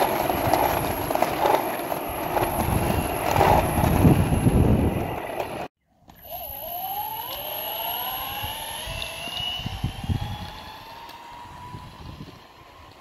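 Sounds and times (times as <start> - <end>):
wheels rumbling on asphalt: 0.0 - 5.7, 8.5 - 13.0
electric motors whining: 0.0 - 13.0.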